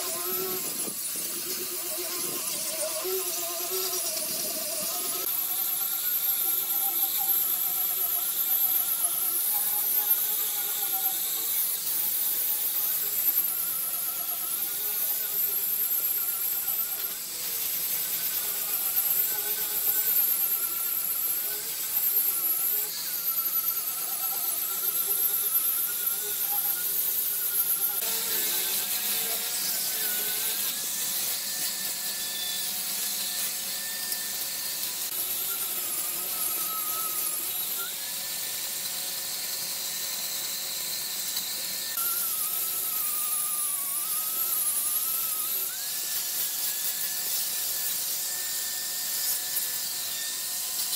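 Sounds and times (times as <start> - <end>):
electric sander on wood: 0.0 - 50.9.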